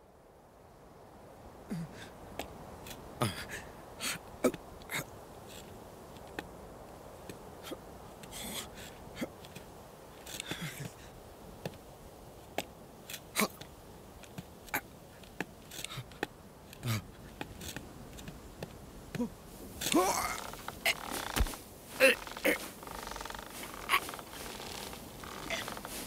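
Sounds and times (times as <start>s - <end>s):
faint steady hiss: 0.0s - 26.0s
hooves clicking on rock: 7.2s - 26.0s
brief rustles: 19.2s - 26.0s.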